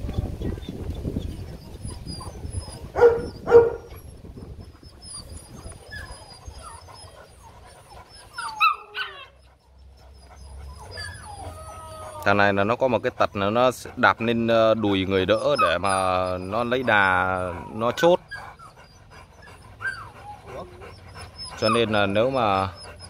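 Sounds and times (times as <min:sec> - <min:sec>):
dog whining: 0:01.2 - 0:23.0
dog barks: 0:02.9 - 0:03.9.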